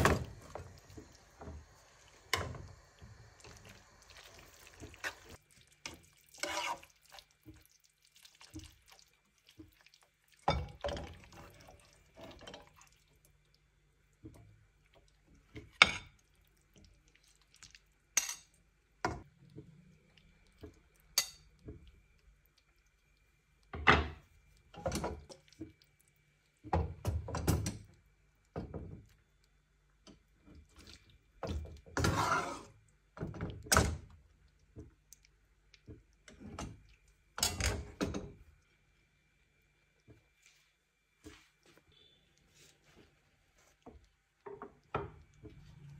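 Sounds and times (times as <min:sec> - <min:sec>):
faint steady hum: 0:00.0 - 0:45.9
metal utensil clinking on pan: 0:18.2 - 0:18.5.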